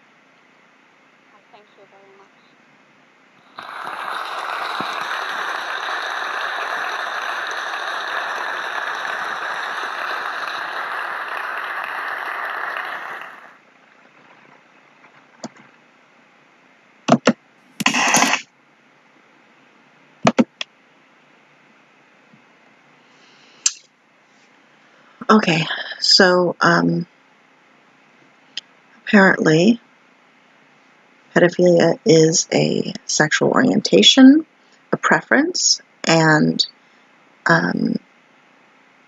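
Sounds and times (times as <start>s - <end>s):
audience applauding: 3.5s - 13.6s.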